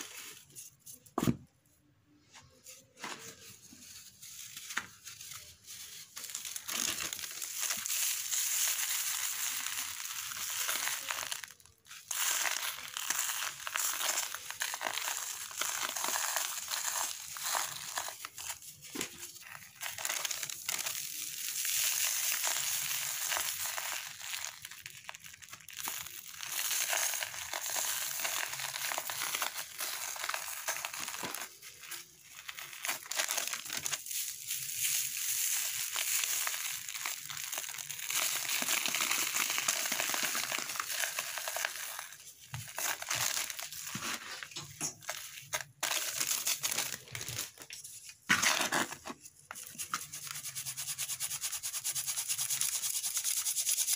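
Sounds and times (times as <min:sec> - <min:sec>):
gritty crunching and rustling: 0:22.0 - 0:50.1.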